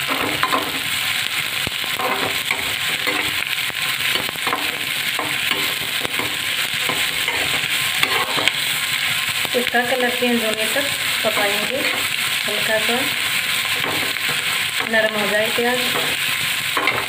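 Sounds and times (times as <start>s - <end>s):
onions sizzling in hot oil: 0.0s - 17.0s
spatula scraping a metal pan: 1.9s - 8.7s.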